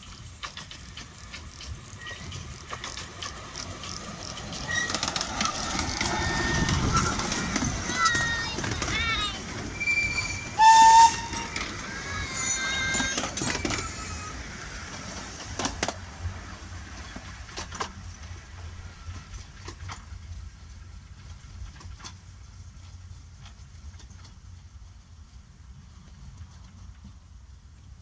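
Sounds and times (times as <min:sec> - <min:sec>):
train wheels clicking on rails: 0:00.0 - 0:28.0
children shouting: 0:04.8 - 0:10.6, 0:11.2 - 0:14.6
steam train whistle: 0:09.8 - 0:11.6.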